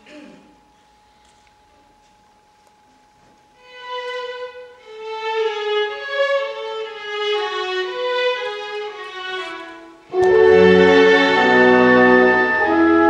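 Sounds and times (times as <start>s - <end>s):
slow solo instrument melody: 10.1s - 13.0s.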